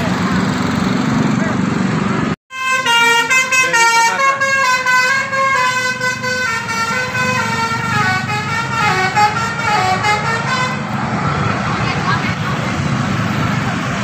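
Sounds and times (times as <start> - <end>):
bus engine: 0.0 - 14.0
street traffic: 0.0 - 14.0
bus horn playing a tune: 2.5 - 10.9.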